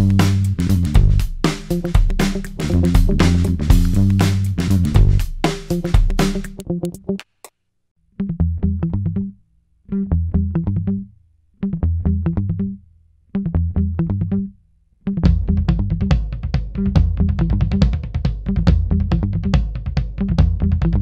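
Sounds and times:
instrumental riff over bass line: 0.0s - 7.2s, 8.2s - 12.8s, 13.4s - 21.0s
full beat: 0.0s - 7.5s, 15.2s - 21.0s.

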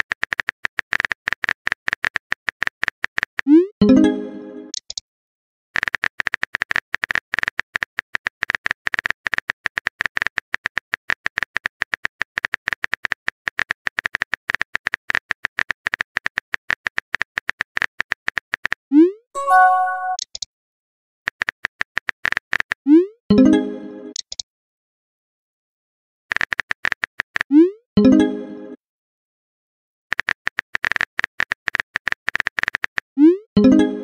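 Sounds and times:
brief chime: 19.4s - 20.2s
keyboard typing clicks: 19.4s - 20.5s.

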